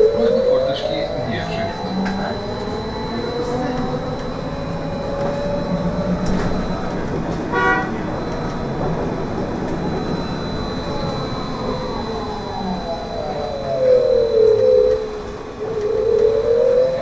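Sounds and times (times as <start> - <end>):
electric drive whine: 0.0 - 17.0
trolleybus running and road noise: 0.0 - 17.0
vehicle horn toot: 7.4 - 8.2.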